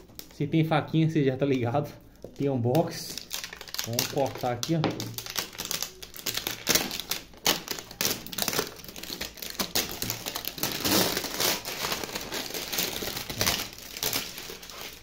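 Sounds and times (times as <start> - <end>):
plastic wrap crinkling and tearing: 1.5 - 15.0.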